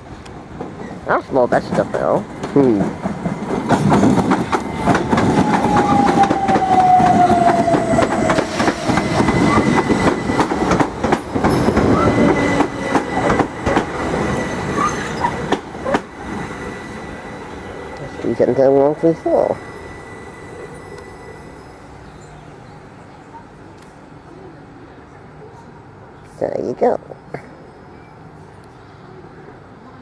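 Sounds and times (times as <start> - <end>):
train wheels clattering over rail joints: 1.6 - 16.4
train whine falling in pitch: 3.4 - 22.4.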